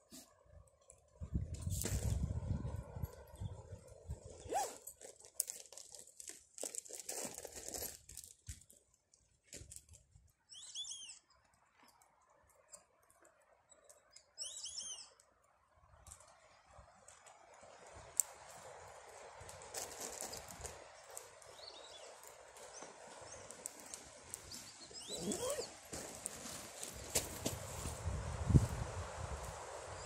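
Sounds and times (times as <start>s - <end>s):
crinkling and rustling in hands: 4.4s - 10.3s
short high chirping calls: 10.5s - 11.4s, 14.2s - 15.2s, 24.8s - 25.8s.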